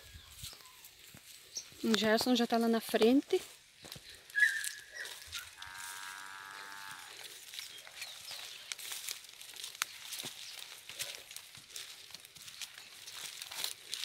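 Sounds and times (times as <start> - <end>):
footsteps rustling through grass: 0.0 - 14.0
animal's long drawn-out call: 4.4 - 7.2.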